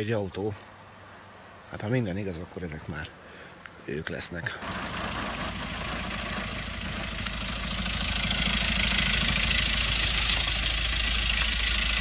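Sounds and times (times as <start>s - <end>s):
van engine idling: 4.6s - 12.0s.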